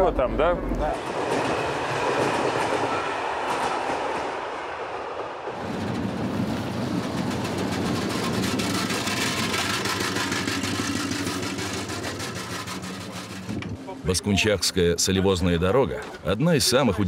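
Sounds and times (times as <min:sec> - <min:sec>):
rumbling vehicle noise: 0:05.6 - 0:14.2
truck engine running: 0:06.5 - 0:13.8.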